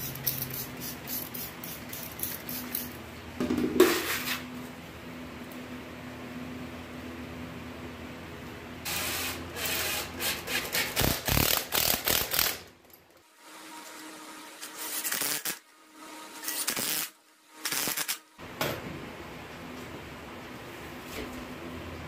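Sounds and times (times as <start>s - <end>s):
log scraping on concrete floor: 3.6s - 4.5s.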